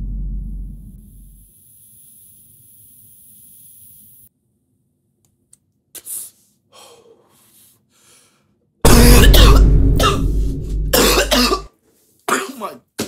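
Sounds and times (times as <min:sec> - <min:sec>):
vape hiss: 0:01.0 - 0:04.3.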